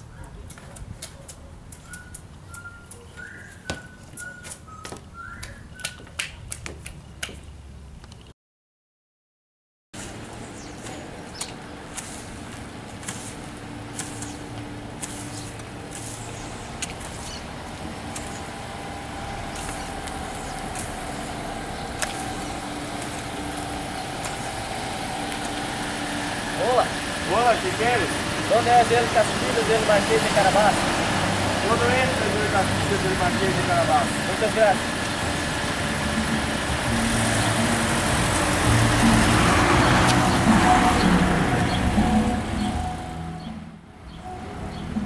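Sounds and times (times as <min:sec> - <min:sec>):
person whistling: 0:01.9 - 0:06.0
car engine running: 0:10.2 - 0:45.0.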